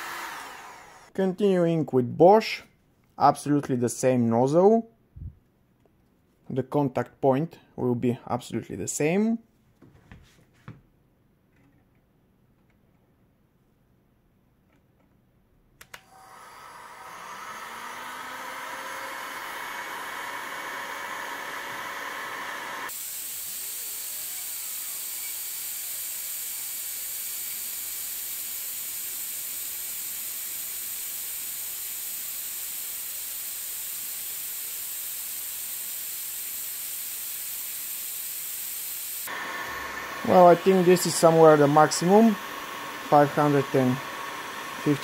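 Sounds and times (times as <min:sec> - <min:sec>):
heat gun fan rushing air: 0:00.0 - 0:01.1, 0:15.9 - 0:45.0.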